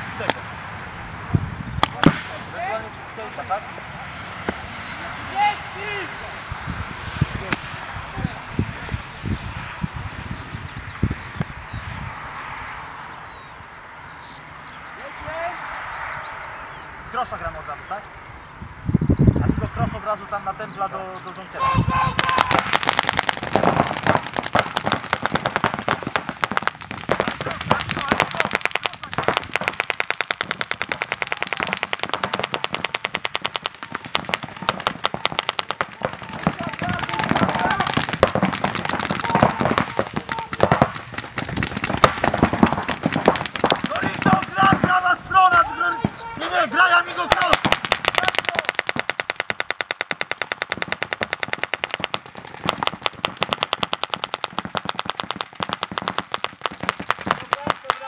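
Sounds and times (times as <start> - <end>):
paintball markers firing rapidly: 22.2 - 45.0, 47.2 - 58.0.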